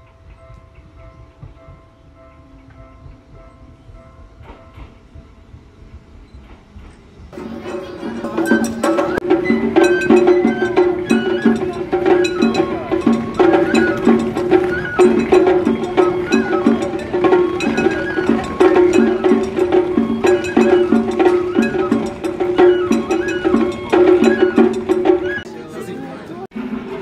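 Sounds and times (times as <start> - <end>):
drums beating steady rhythm: 7.3 - 27.0
bamboo flute melody: 7.4 - 26.2.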